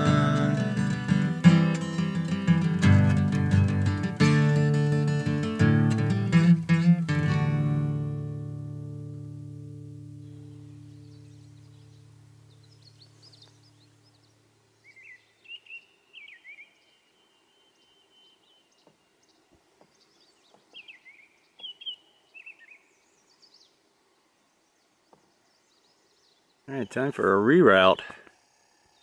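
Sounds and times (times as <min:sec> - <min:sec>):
guitar chord ringing: 0:00.0 - 0:13.1
faint outdoor ambience: 0:00.0 - 0:29.0
songbird chirping: 0:00.0 - 0:29.0.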